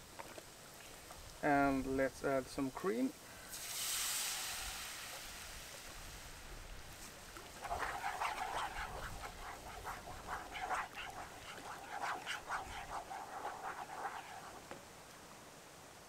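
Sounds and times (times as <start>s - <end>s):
wooden spoon scraping pan: 7.0s - 14.8s.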